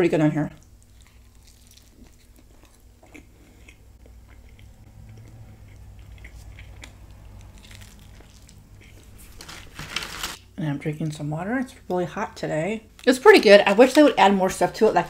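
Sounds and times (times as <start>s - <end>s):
chewing and mouth smacks: 0.6s - 9.1s.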